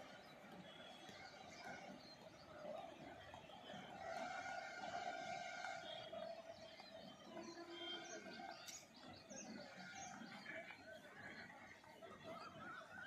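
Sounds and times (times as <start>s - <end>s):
faint steady drone: 0.0s - 13.0s
small birds chirping: 5.8s - 13.0s.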